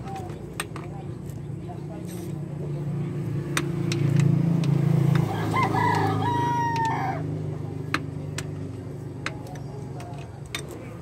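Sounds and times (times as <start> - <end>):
rooster crowing: 5.3 - 7.3.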